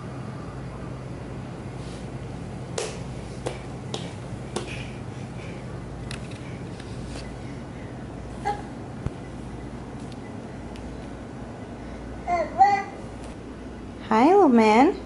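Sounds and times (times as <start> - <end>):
steady low hum: 0.0 - 15.0
hands patting wooden floor: 2.8 - 4.9.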